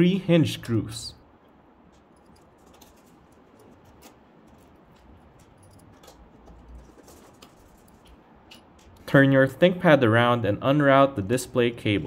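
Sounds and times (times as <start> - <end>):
screwdriver clicking and scratching: 2.0 - 9.0.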